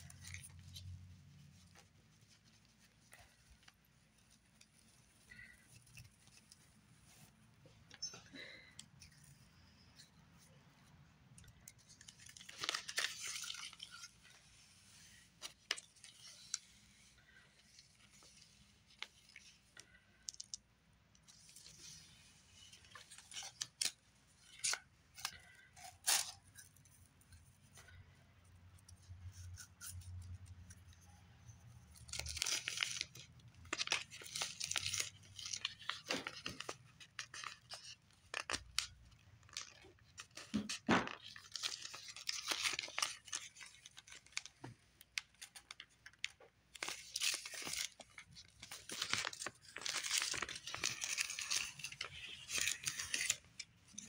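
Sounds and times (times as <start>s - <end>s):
plastic packaging crinkling: 11.7s - 14.4s, 31.9s - 54.0s.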